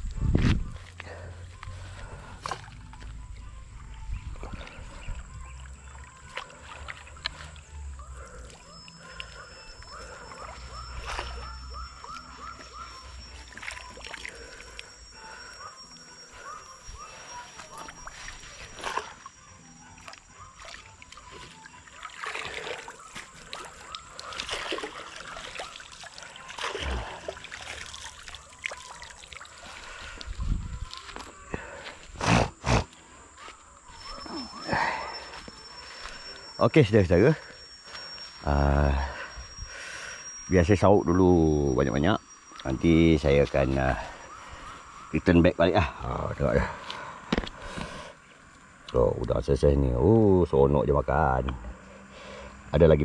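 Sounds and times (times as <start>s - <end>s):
thin high steady tone: 2.0s - 31.9s, 33.0s - 46.8s
animal calling repeatedly: 4.5s - 47.2s
dip net splashing in water: 22.0s - 22.9s, 23.5s - 29.5s.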